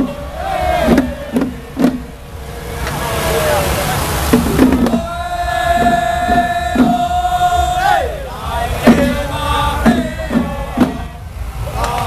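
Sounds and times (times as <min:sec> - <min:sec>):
sharp percussion strikes: 0:04.2 - 0:11.3.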